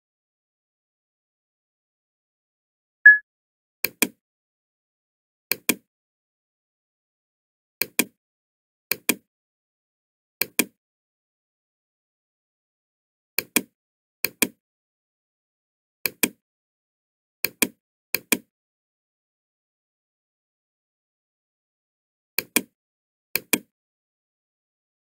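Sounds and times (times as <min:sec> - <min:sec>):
computer mouse clicks: 0:07.8 - 0:08.2, 0:08.9 - 0:09.2, 0:13.4 - 0:14.6, 0:22.4 - 0:22.7, 0:23.4 - 0:23.7.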